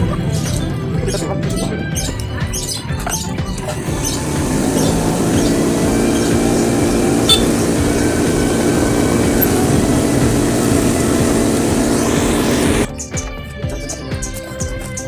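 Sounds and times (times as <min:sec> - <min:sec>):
cotton candy machine whirring: 0:03.4 - 0:12.9.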